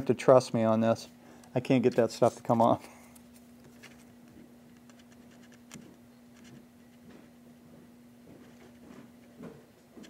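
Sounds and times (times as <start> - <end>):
steady low hum: 0.0 - 10.0.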